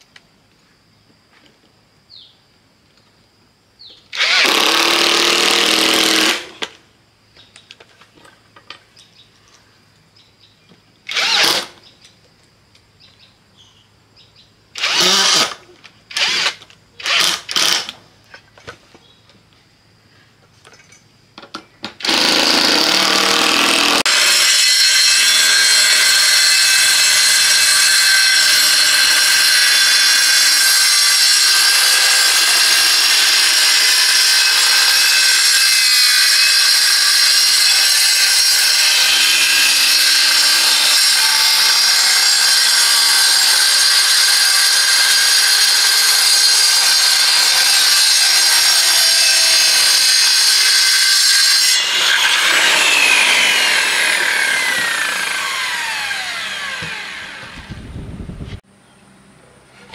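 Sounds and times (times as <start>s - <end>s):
power tool spinning down: 4.1s - 6.6s, 11.1s - 11.8s, 14.8s - 18.0s, 22.0s - 57.8s
power tool cutting: 4.2s - 6.6s, 11.1s - 11.8s, 14.8s - 18.0s, 22.0s - 57.8s.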